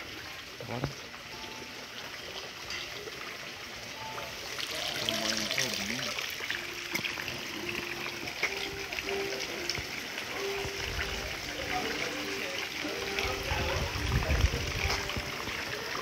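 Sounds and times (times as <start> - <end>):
running water trickling: 0.0 - 16.0
faint voices: 7.3 - 16.0.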